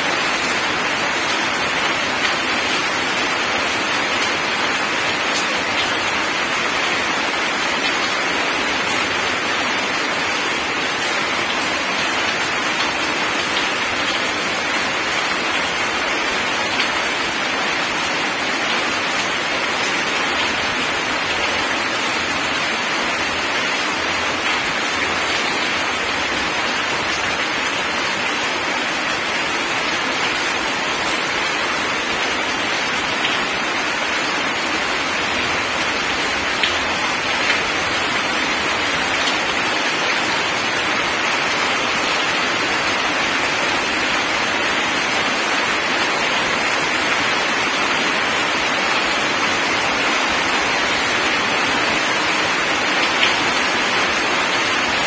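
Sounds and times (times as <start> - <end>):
heavy rain on gravel: 0.0 - 55.0.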